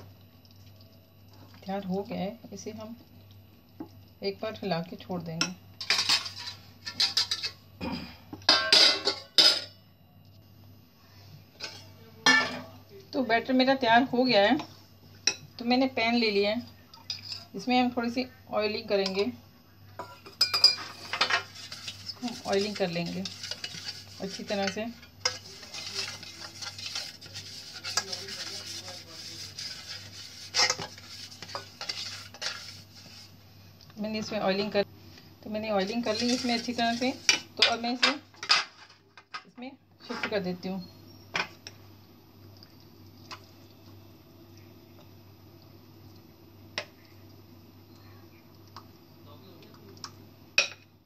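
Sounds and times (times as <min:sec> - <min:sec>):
kitchenware clanking: 0:05.4 - 0:07.6, 0:08.4 - 0:09.8, 0:11.6 - 0:12.7, 0:20.0 - 0:32.8, 0:35.8 - 0:39.5
fingers rubbing metal bowl: 0:21.6 - 0:33.2.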